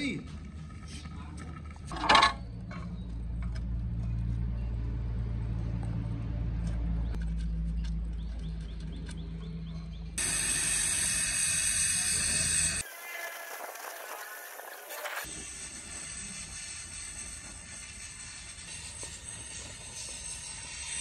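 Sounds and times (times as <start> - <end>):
welding torch flame hissing: 10.2 - 21.0.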